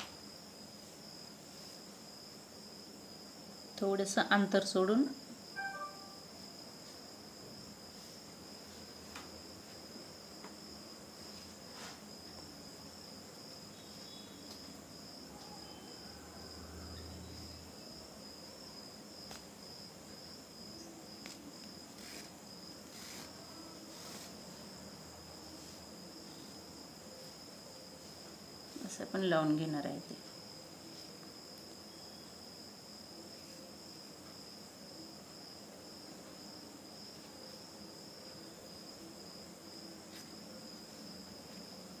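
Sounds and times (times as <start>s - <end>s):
faint high-pitched trill: 5.5s - 6.4s, 15.3s - 17.4s.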